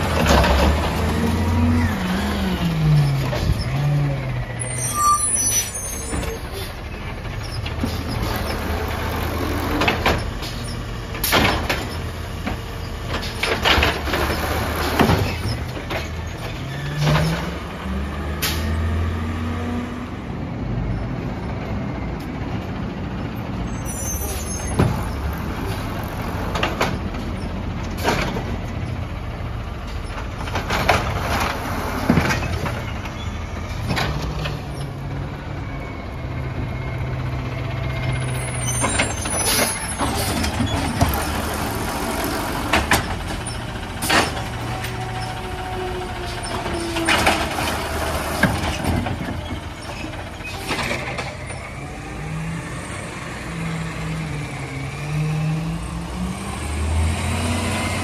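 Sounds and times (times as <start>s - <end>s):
garbage truck engine revving: 6.7s - 12.4s, 23.9s - 29.5s, 36.3s - 58.0s.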